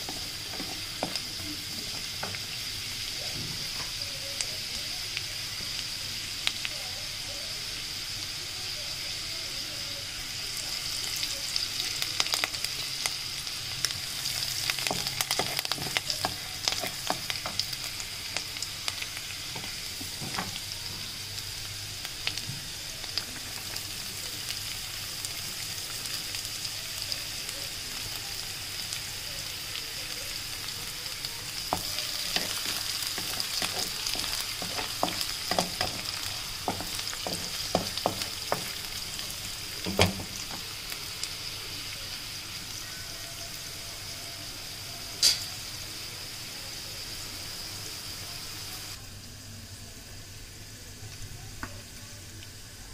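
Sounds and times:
wooden spatula scraping and tapping: 0.0s - 1.2s, 31.7s - 38.8s
garlic sizzling in hot oil: 0.0s - 52.9s.

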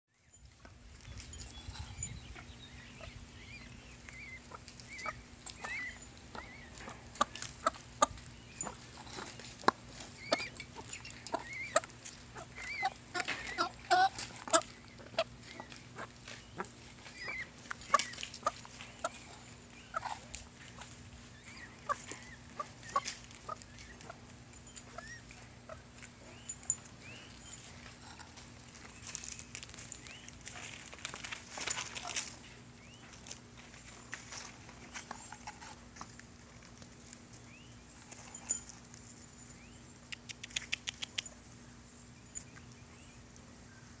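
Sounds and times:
peahen soft clucking: 1.6s - 28.4s.

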